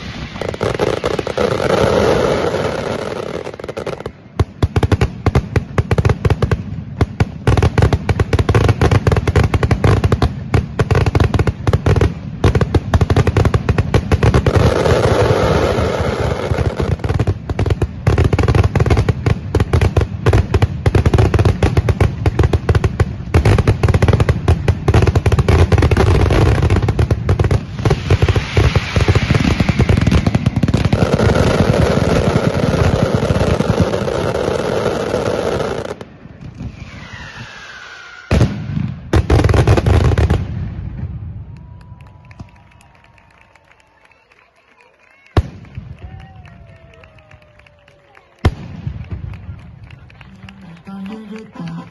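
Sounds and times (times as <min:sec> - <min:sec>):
firecrackers banging rapidly: 0:00.0 - 0:36.0.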